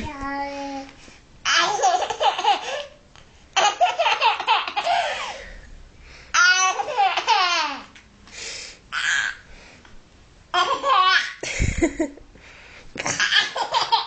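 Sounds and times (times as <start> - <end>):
baby laughing: 1.5 - 3.0, 3.6 - 5.2, 6.4 - 7.9, 10.6 - 12.0, 13.0 - 14.0.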